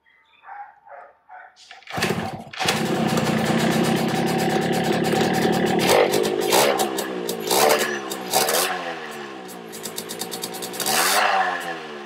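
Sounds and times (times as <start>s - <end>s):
two-stroke engine revving: 1.7s - 12.0s.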